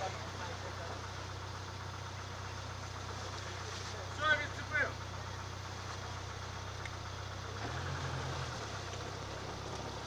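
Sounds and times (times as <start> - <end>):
engine running and revving: 4.6 - 10.0.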